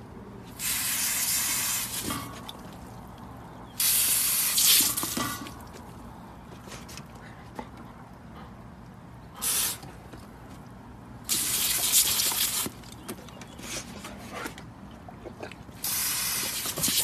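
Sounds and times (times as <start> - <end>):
hose nozzle spraying water: 0.6 - 2.6, 3.8 - 5.5, 11.2 - 12.8, 15.8 - 17.0.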